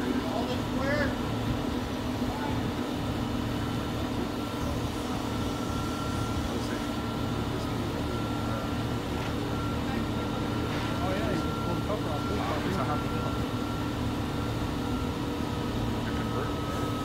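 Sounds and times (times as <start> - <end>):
crane diesel engine running: 0.0 - 17.0
thin steady whine: 0.0 - 17.0.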